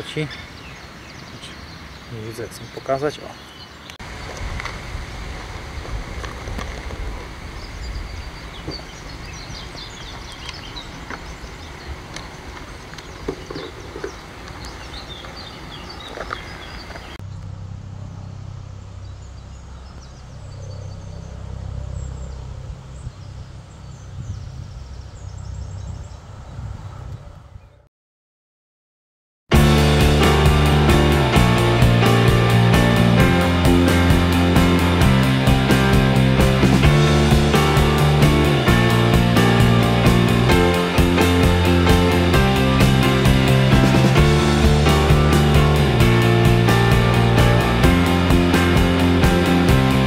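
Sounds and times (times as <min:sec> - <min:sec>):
small birds chirping: 0:00.0 - 0:04.5, 0:06.6 - 0:17.6, 0:18.3 - 0:27.8
steady low rumble: 0:04.1 - 0:12.1, 0:17.2 - 0:27.5, 0:29.5 - 0:50.0.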